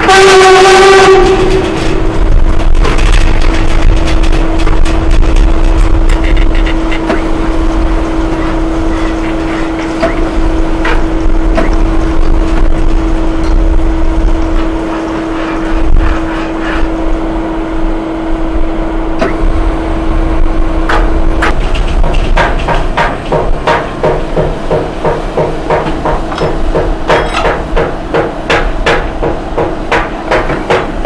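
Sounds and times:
low rumble: 0:01.2 - 0:08.9
metal clanks: 0:21.0 - 0:28.0.

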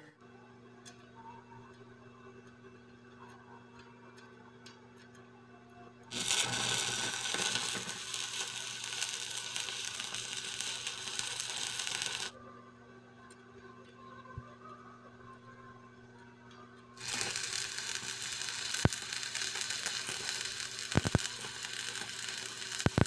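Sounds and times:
welding arc crackling: 0:06.1 - 0:12.4, 0:17.0 - 0:23.0.

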